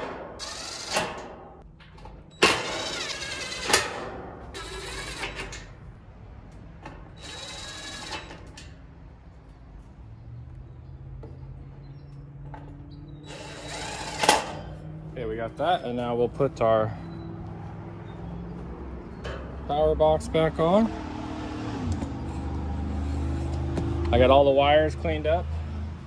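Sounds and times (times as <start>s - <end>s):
impact driver driving screws: 0.0s - 1.4s, 2.4s - 5.7s, 13.3s - 14.7s.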